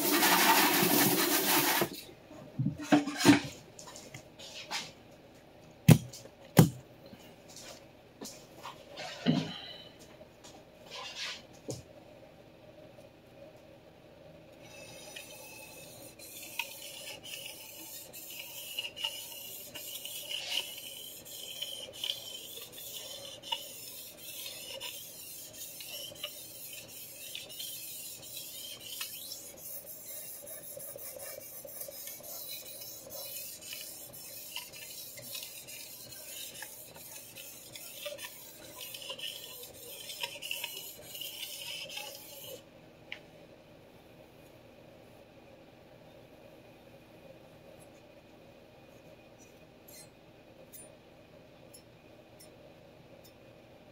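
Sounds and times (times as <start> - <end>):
knife scraping on sharpening stone: 14.7 - 42.6.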